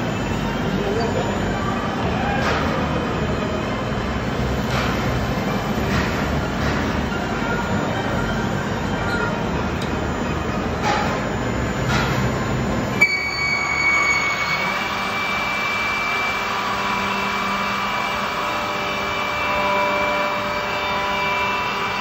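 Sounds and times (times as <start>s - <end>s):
cutters milling wooden blocks: 13.2s - 22.0s.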